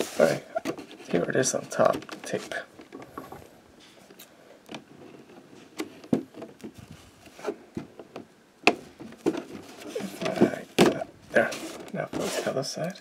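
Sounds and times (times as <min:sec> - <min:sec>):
soft rubs on cardboard box: 0:11.3 - 0:12.7.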